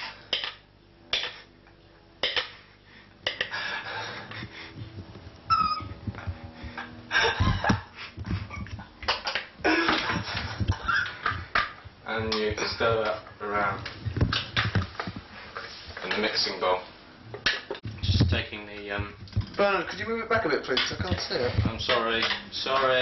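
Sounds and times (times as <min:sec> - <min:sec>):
heavy breathing: 0:02.5 - 0:05.3, 0:06.0 - 0:08.6
laughter: 0:07.1 - 0:11.5.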